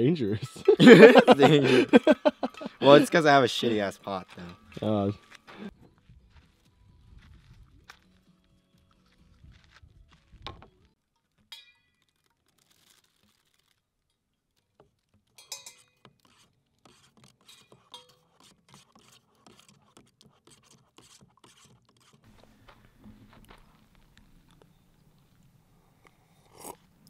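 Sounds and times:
spoon stirring in paper cup: 14.8s - 22.6s
cup and utensil clinking: 15.4s - 16.1s, 17.5s - 18.3s.

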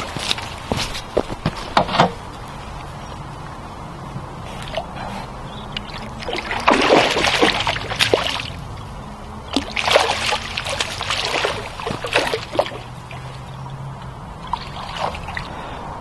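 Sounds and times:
fish splashing at water surface: 5.7s - 13.6s, 14.4s - 15.6s.

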